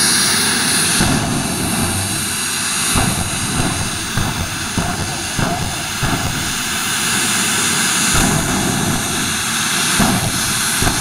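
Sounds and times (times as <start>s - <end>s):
jet engine roaring: 0.0s - 11.0s
short pop: 1.0s - 6.8s.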